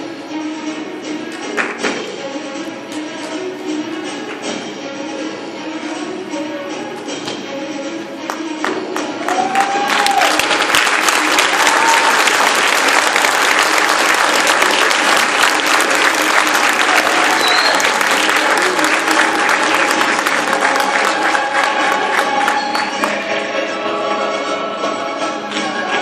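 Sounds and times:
music playing: 0.0s - 26.0s
audience applauding: 8.6s - 23.2s.

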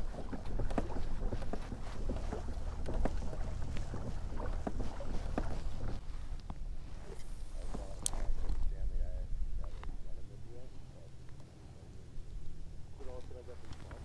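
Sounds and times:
waves slapping against plastic hull: 0.0s - 6.2s.

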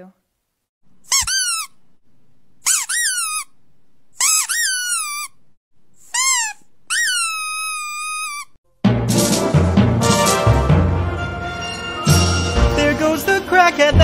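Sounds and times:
high-pitched squeaks: 1.1s - 1.8s, 2.6s - 3.5s, 4.2s - 5.4s, 6.0s - 8.6s.

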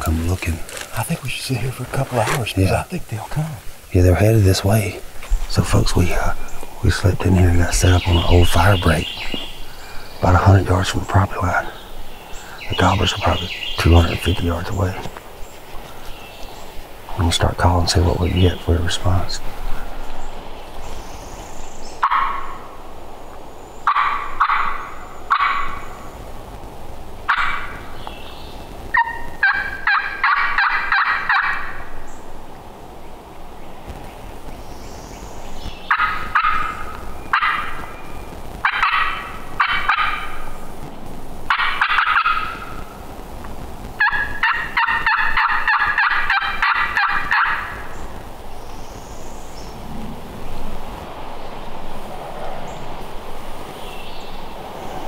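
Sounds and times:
turkey call yelping: 22.0s - 22.7s, 23.8s - 26.0s, 27.3s - 27.8s, 28.9s - 31.9s, 35.9s - 38.0s, 38.6s - 40.6s, 41.5s - 43.0s, 44.0s - 48.0s.

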